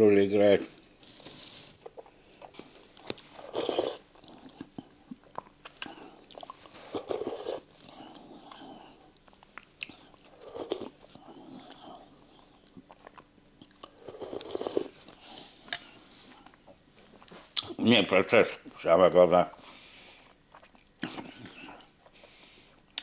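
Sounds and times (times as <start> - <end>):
man chewing soup: 1.1 - 17.8, 19.5 - 23.0.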